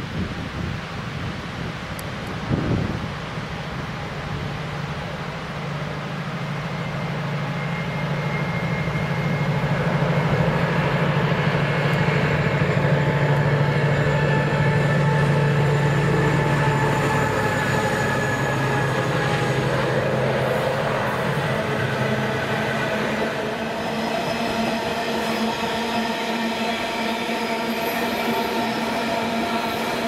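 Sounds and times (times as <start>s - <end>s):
diesel locomotive throbbing: 4.8s - 30.0s
high whining tones: 6.7s - 30.0s.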